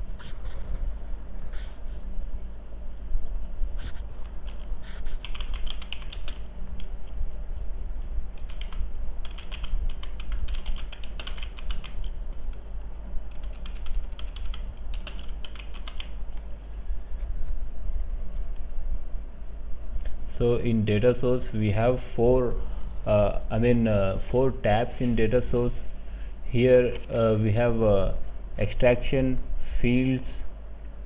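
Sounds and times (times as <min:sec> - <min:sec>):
low hum: 0:00.0 - 0:31.0
typing on a keyboard: 0:05.2 - 0:06.4, 0:08.4 - 0:12.6, 0:13.3 - 0:16.1.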